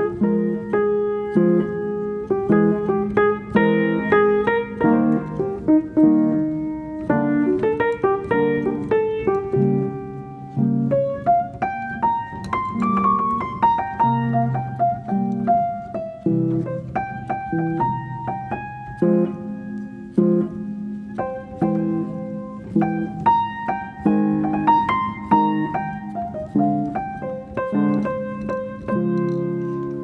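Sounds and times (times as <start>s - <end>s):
piano music: 0.0s - 30.0s.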